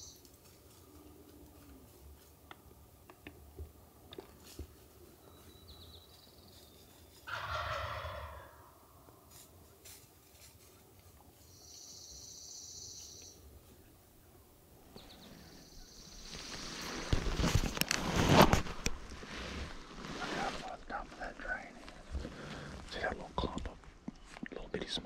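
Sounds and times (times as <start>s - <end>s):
turkey gobbling: 7.3s - 8.7s.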